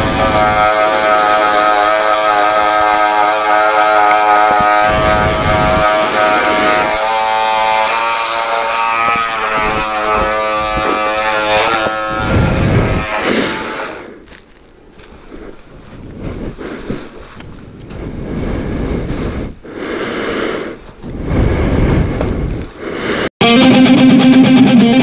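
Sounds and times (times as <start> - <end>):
electric hair clipper buzzing: 0.0 - 14.0.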